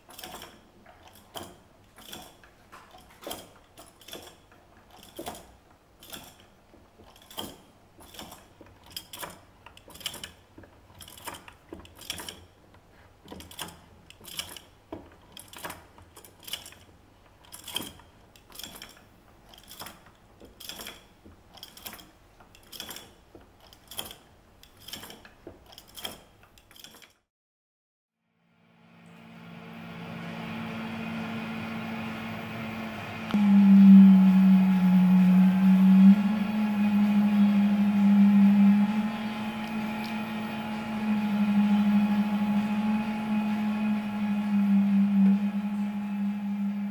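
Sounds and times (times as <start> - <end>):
wooden mechanism clicking and knocking: 0.0 - 27.2.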